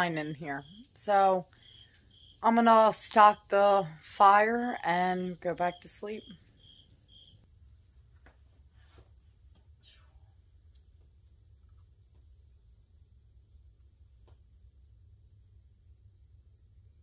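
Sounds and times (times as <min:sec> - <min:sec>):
high-pitched insect trill: 0:06.2 - 0:17.0.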